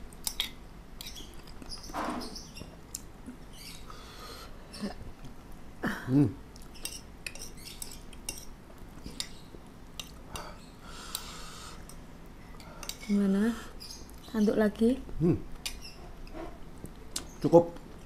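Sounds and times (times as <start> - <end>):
spoon and dishes clinking: 6.8 - 8.5.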